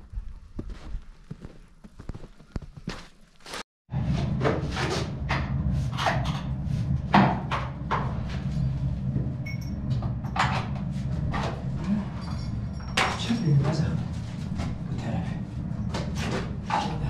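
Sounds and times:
steady low hum: 0:04.0 - 0:17.0.

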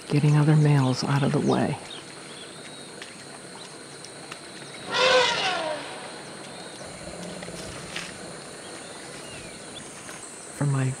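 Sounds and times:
insects buzzing: 0:00.0 - 0:11.0
elephant call: 0:04.8 - 0:09.5.

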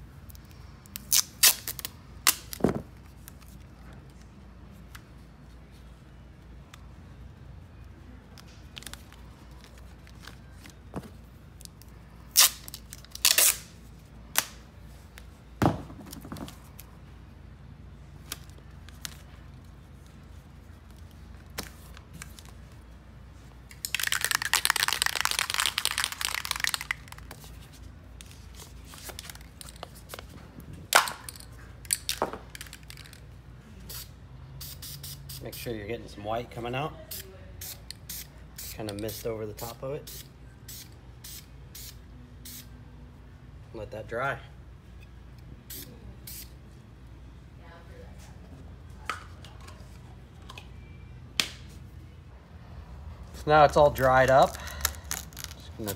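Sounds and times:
tape ripping and crinkling: 0:00.9 - 0:03.6, 0:11.6 - 0:14.6, 0:23.7 - 0:30.3, 0:54.0 - 0:55.9.

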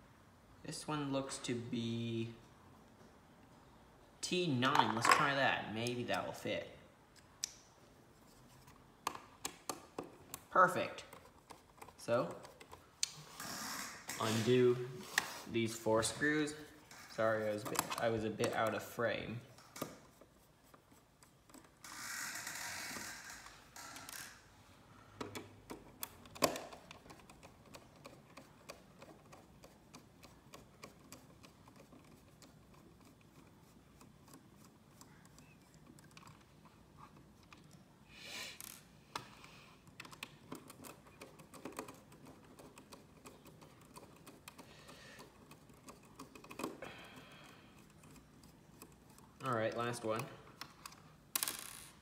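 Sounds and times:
brief scraping: 0:14.2 - 0:15.6.

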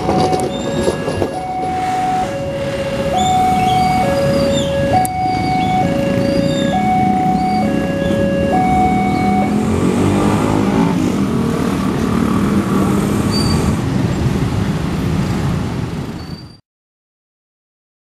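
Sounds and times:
level-crossing alarm two tones: 0:00.0 - 0:09.6
vehicle engine noise: 0:00.0 - 0:16.5.

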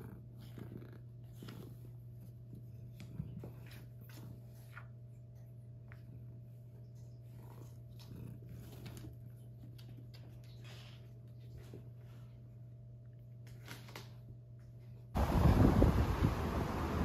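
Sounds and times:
cat rustling on wooden floor: 0:00.4 - 0:15.1
steady low hum: 0:14.2 - 0:17.0.

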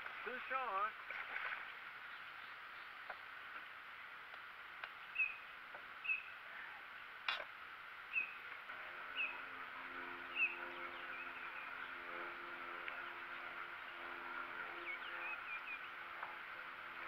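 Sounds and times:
low hum: 0:00.0 - 0:17.0
bird chirping: 0:02.0 - 0:03.3, 0:04.9 - 0:06.8, 0:08.1 - 0:17.0.

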